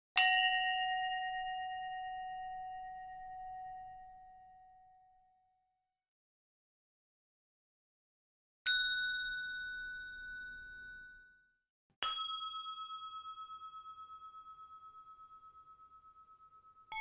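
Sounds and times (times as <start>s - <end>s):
high bell ding: 8.7s - 11.4s, 12.0s - 17.0s
low bell ding with pulsing tone: 8.7s - 11.4s, 12.0s - 17.0s.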